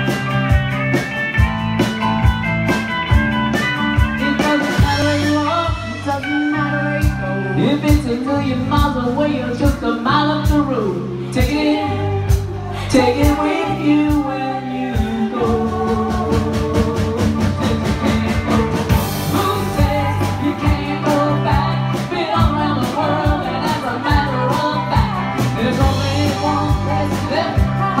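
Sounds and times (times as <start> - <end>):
rock band playing: 0.0 - 28.0
person singing: 4.0 - 28.0.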